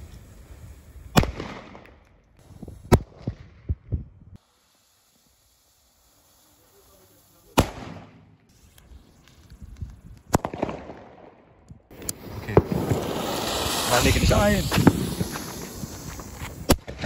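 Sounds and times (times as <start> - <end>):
firecracker bangs echoing: 12.3 - 17.0.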